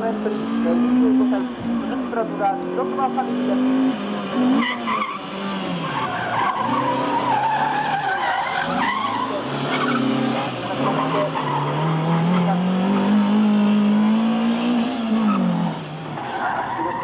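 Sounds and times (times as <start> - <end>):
car engine revving: 0.0 - 17.0
tyres squealing: 3.7 - 13.2, 15.1 - 17.0.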